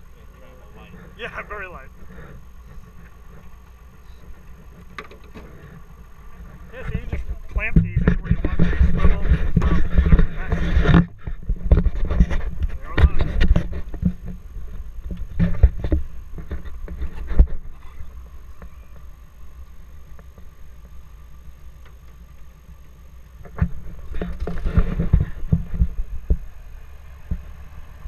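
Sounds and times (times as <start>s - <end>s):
footsteps and knocks on plane wing: 6.8s - 14.4s.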